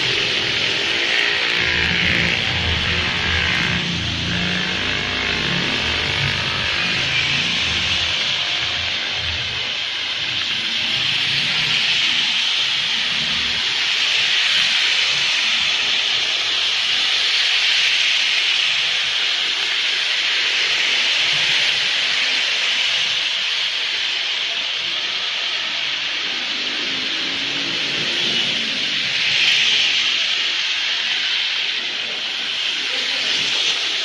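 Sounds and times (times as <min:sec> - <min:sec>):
hissing wet street ambience: 0:00.0 - 0:34.0
traffic passing on wet asphalt: 0:23.7 - 0:34.0.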